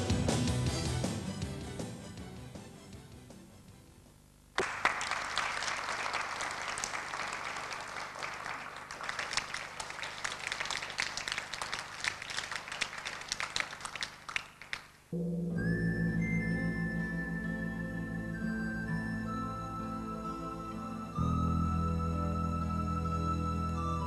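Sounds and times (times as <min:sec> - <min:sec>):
audience applauding: 0:04.6 - 0:15.0.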